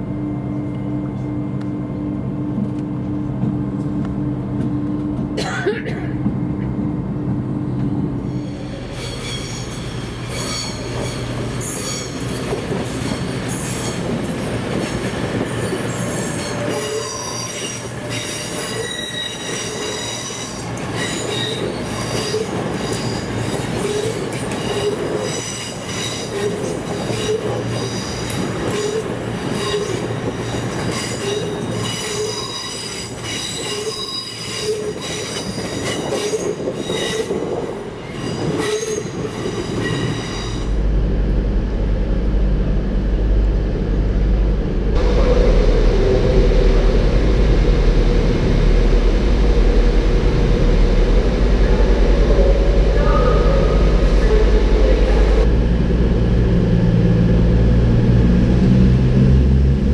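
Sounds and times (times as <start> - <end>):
train rumble: 0.0 - 59.9
train wheels squealing: 8.2 - 14.1, 15.4 - 40.8.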